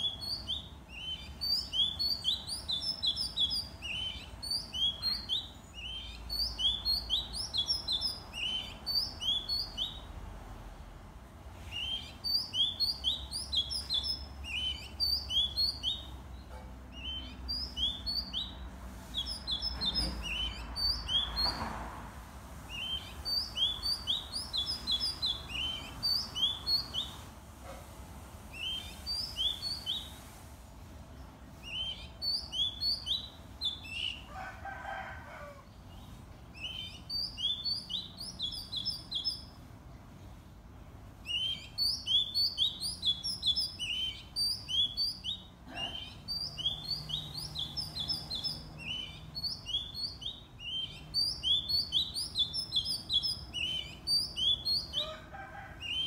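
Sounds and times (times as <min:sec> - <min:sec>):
bird singing chirps and whistles: 0:00.0 - 0:10.0, 0:11.7 - 0:16.2, 0:17.0 - 0:21.6, 0:22.7 - 0:27.2, 0:28.6 - 0:30.2, 0:31.6 - 0:34.2, 0:36.6 - 0:39.5, 0:41.3 - 0:55.0.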